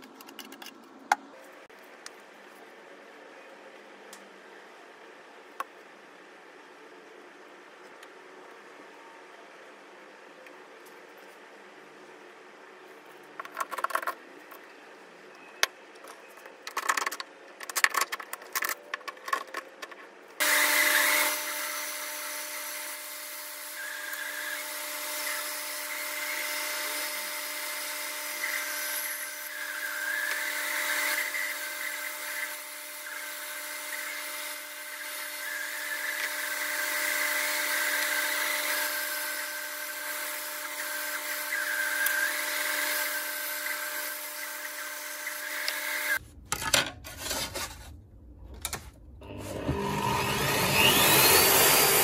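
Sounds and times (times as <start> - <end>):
bandsaw cutting wood: 49.3 - 52.0.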